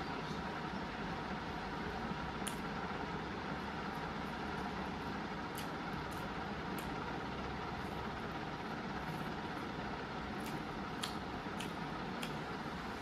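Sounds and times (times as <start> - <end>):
soft eating clicks: 2.4 - 2.8, 3.9 - 7.2, 9.1 - 12.7.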